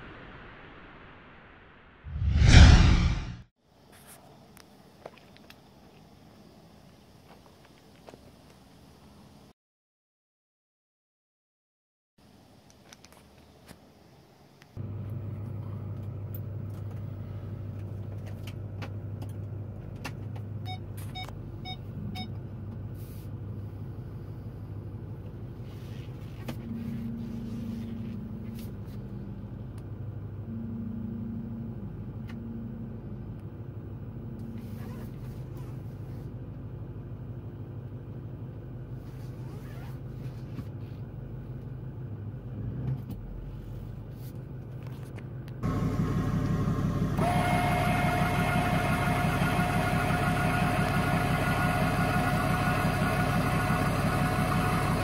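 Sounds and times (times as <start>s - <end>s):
pickup truck engine running: 45.6s - 55.0s.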